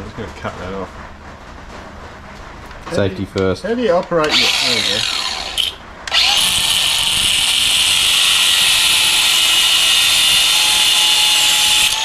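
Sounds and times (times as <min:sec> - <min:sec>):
angle grinder cutting steel: 0:04.2 - 0:12.0.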